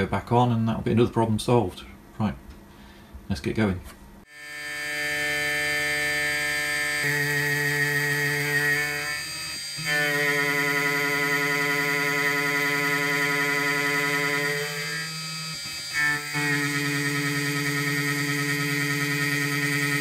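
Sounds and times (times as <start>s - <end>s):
end mill whining through metal: 4.3s - 20.0s.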